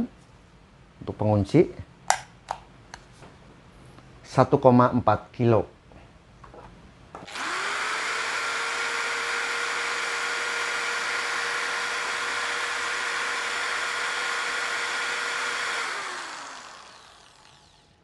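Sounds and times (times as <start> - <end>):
electric drill whining: 7.2 - 18.0.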